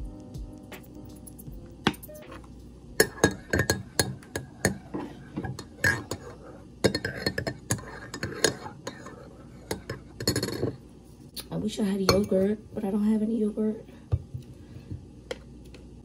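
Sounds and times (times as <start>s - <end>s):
dishes and cutlery clinking: 1.3s - 10.8s, 12.1s - 12.5s.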